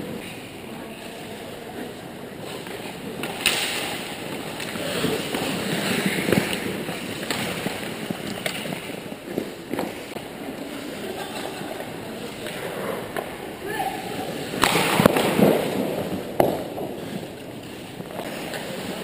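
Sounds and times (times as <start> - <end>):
hockey sticks and puck clacking: 0.0 - 19.0
skates scraping on ice: 0.0 - 19.0.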